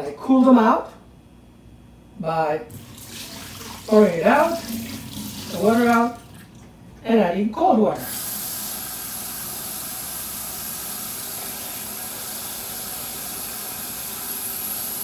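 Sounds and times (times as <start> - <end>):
faucet running water: 2.7 - 6.8, 7.9 - 15.0.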